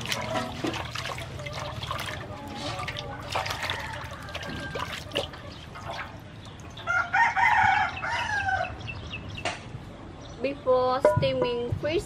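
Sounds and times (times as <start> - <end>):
water sloshing in metal basin: 0.0 - 6.9
rooster crowing: 3.4 - 5.3, 6.8 - 8.8.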